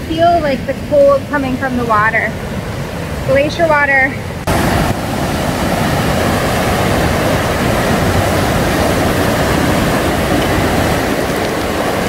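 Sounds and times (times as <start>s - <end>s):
river rushing over boulders: 1.0s - 12.0s.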